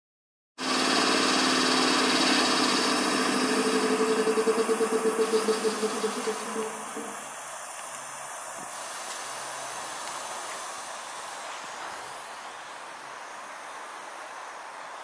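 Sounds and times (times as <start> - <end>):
air compressor pulsing hum: 0.6 - 7.4.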